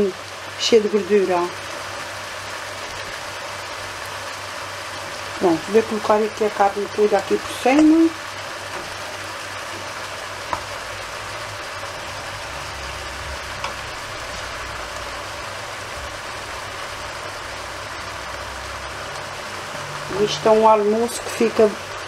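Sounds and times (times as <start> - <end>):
vegetables sizzling in a pan: 0.0 - 22.0
faint knocks of meat in pan: 9.8 - 10.7.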